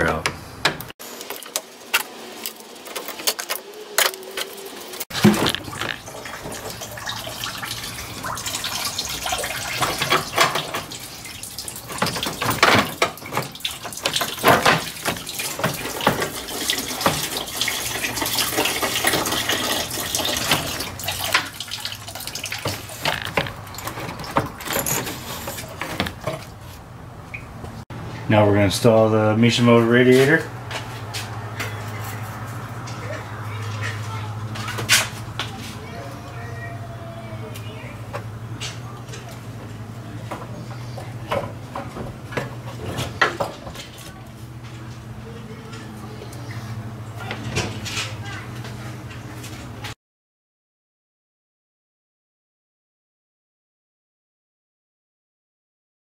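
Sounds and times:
coolant running out: 0:01.0 - 0:26.6
knocks and clatter of hose: 0:05.1 - 0:06.8, 0:09.4 - 0:26.6.

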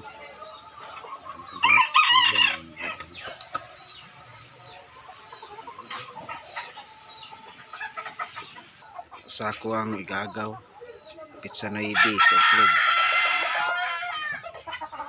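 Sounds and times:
chickens clucking: 0:00.0 - 0:15.0
rooster crowing: 0:01.6 - 0:03.0, 0:12.0 - 0:14.4.

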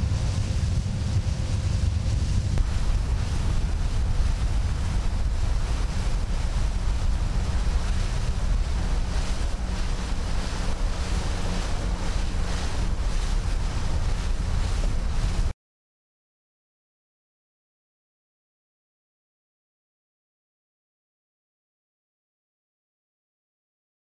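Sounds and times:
low rumble: 0:00.0 - 0:15.5
water rushing past boat: 0:00.0 - 0:15.5
wind buffeting microphone: 0:00.0 - 0:15.5.

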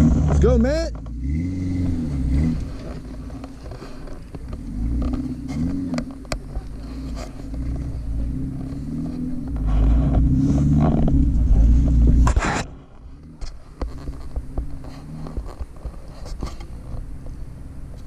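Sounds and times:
engine revving: 0:00.0 - 0:18.0.

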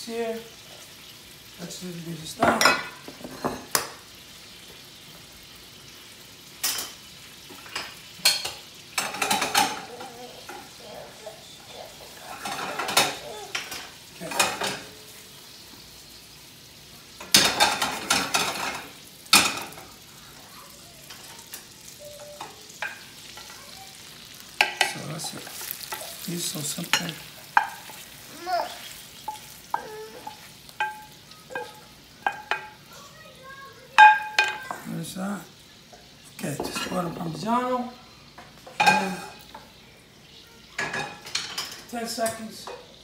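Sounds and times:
gnocchi sizzling in a pan: 0:00.0 - 0:43.0
wooden spoon scraping a pan: 0:24.6 - 0:32.7.

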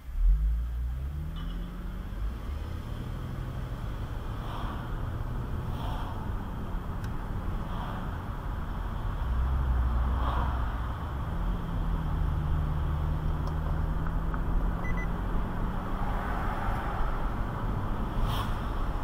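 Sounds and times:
car engine and road rumble: 0:00.0 - 0:19.0.

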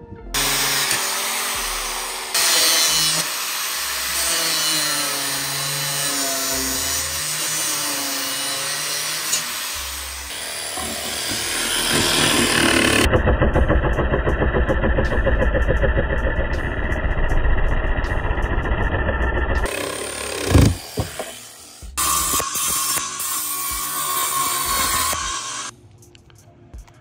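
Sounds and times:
jigsaw cutting plywood: 0:00.4 - 0:16.9, 0:18.1 - 0:22.6
angle grinder cutting metal: 0:00.4 - 0:25.7.

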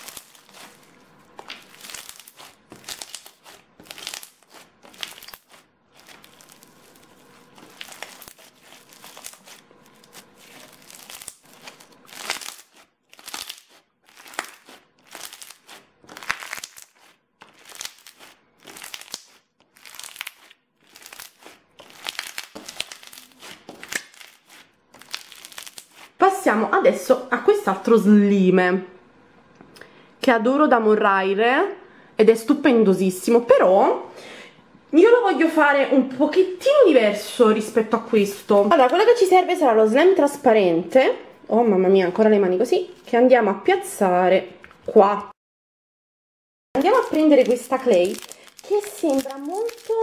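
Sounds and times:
crunchy slime squeezed by hand: 0:00.0 - 0:26.2, 0:46.8 - 0:50.0.

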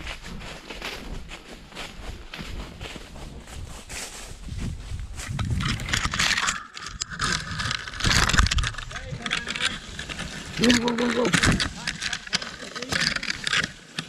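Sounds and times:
horse hoofbeats walking: 0:00.0 - 0:06.3, 0:07.1 - 0:14.0
branches and leaves brushing: 0:00.0 - 0:14.0.

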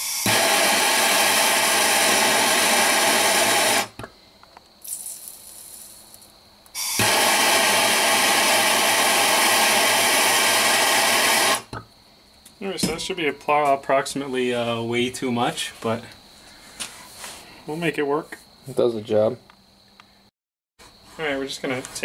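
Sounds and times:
gas torch flame hissing: 0:00.0 - 0:04.1, 0:06.8 - 0:11.8.

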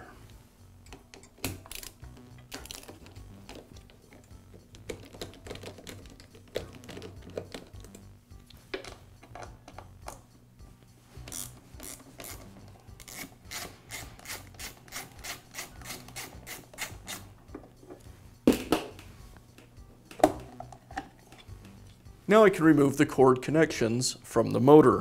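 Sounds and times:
screwdriver scraping screws: 0:11.3 - 0:17.3
metal cover knocks: 0:20.2 - 0:20.8.

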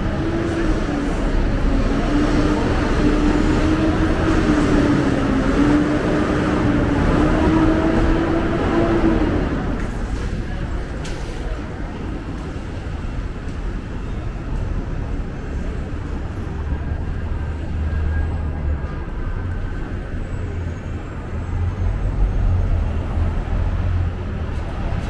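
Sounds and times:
traffic engine rumble: 0:00.0 - 0:25.0.

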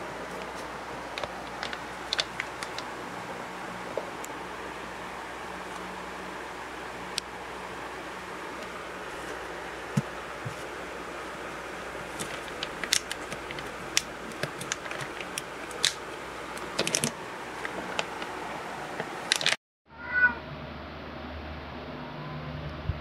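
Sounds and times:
plastic bag crinkling: 0:01.1 - 0:02.9, 0:11.9 - 0:18.4, 0:19.2 - 0:19.6.

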